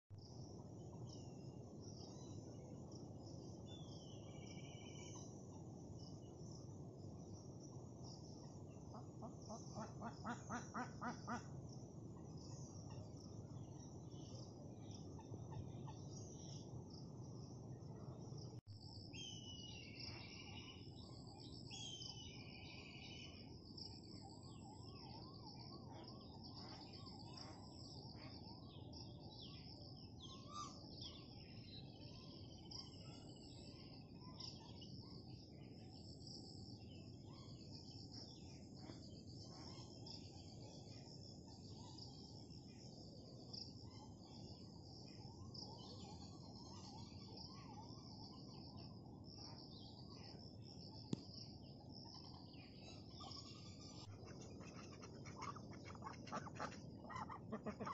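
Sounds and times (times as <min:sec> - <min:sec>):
bird chirps and calls: 0:52.0 - 0:57.9.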